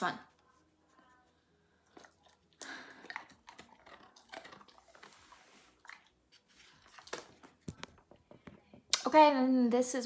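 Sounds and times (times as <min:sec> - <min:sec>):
dog chewing a treat: 0:01.9 - 0:07.8.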